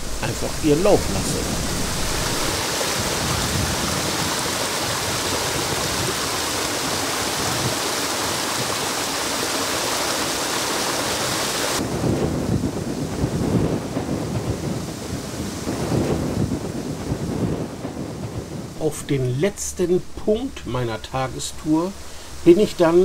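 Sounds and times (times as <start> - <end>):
waterfall rushing over stone: 0.0 - 11.9, 18.7 - 23.0.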